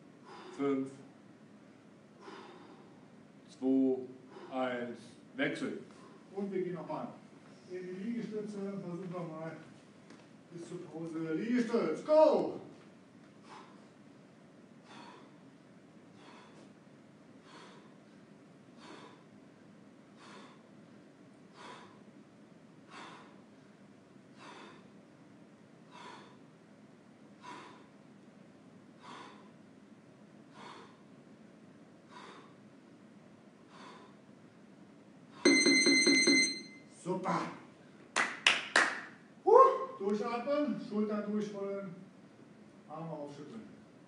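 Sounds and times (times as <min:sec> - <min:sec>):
man breathing out sharply: 0:00.2 - 0:00.6, 0:02.2 - 0:03.0, 0:13.4 - 0:14.0, 0:14.8 - 0:15.4, 0:16.1 - 0:16.8, 0:17.4 - 0:18.0, 0:18.8 - 0:19.3, 0:20.2 - 0:20.7, 0:21.5 - 0:22.0, 0:22.9 - 0:23.5, 0:24.4 - 0:25.0, 0:25.9 - 0:26.5, 0:27.4 - 0:28.0, 0:29.0 - 0:29.6, 0:30.5 - 0:31.1, 0:32.1 - 0:32.6, 0:33.7 - 0:34.2
loud electronic beep: 0:35.5 - 0:36.8.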